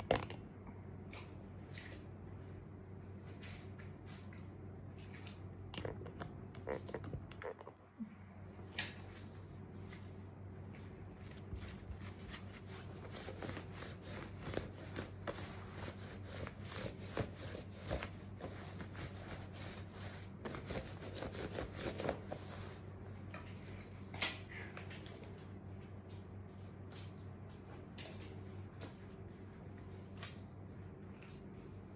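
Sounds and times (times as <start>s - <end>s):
low steady hum: 0.0s - 31.9s
wet cloth squelching and rustling: 8.7s - 22.9s.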